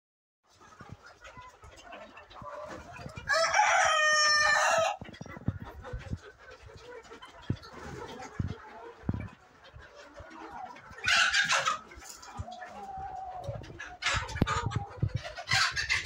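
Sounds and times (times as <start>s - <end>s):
chickens clucking: 0.5s - 16.0s
rooster crowing: 3.3s - 4.8s.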